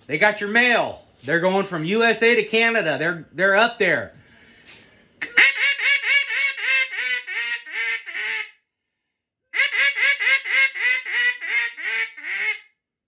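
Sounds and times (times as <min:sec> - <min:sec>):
duck call quacks: 0:05.2 - 0:08.6, 0:09.6 - 0:12.7.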